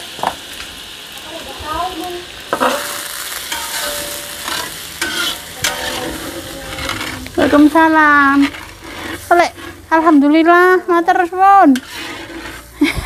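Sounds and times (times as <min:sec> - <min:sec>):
food sizzling: 0:00.0 - 0:13.0
metal spatula scraping wok: 0:02.3 - 0:13.0
spatula clacking against wok: 0:02.5 - 0:07.4.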